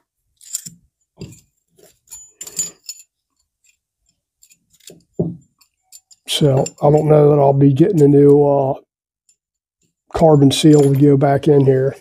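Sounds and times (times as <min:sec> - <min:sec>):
metal parts clicking and knocking: 0:00.4 - 0:07.3, 0:10.5 - 0:12.0.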